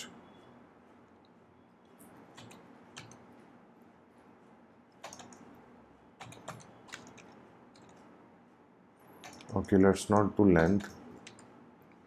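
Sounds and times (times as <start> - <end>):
keyboard typing clicks: 2.0 - 3.3, 5.0 - 5.5, 6.2 - 8.1, 9.2 - 12.0.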